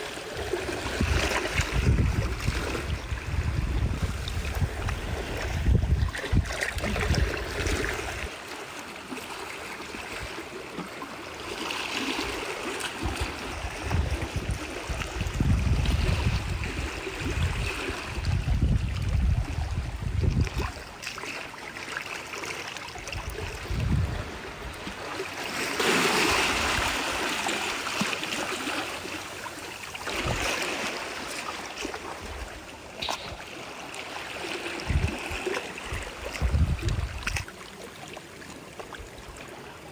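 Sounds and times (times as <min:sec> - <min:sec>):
seawater washing among rocks: 0:00.0 - 0:39.9
wind gusts on microphone: 0:00.4 - 0:08.3, 0:13.0 - 0:20.9, 0:23.2 - 0:25.0, 0:26.3 - 0:27.2, 0:30.1 - 0:30.7, 0:34.4 - 0:37.5.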